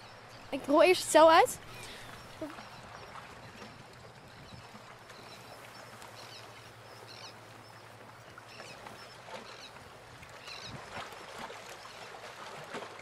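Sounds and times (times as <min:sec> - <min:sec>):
steady outdoor hiss: 0:00.0 - 0:03.0.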